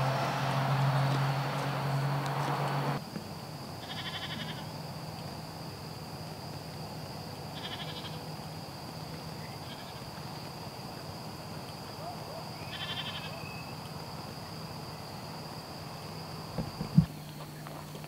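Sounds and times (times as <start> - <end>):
loud rushing noise: 0.0 - 3.0
livestock bleating: 3.8 - 4.7, 7.6 - 8.2, 12.7 - 13.3.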